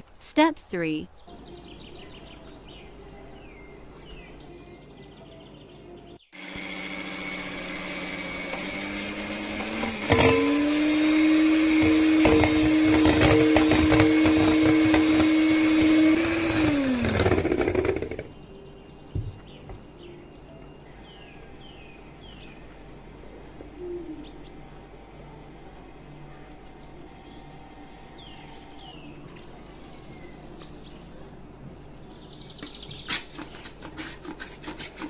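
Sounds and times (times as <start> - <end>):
hand mixer motor whining: 6.4 - 18.3.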